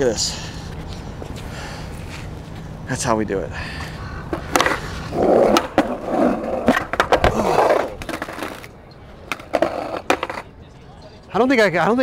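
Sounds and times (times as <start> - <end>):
skateboard wheels rolling on concrete: 0.0 - 12.0
skateboard clacks: 4.3 - 10.5.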